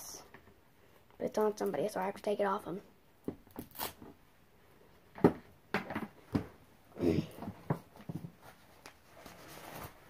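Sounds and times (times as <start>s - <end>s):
plastic dolls knocking and clattering: 5.1s - 6.6s
soft rustling of doll clothes: 6.2s - 10.0s.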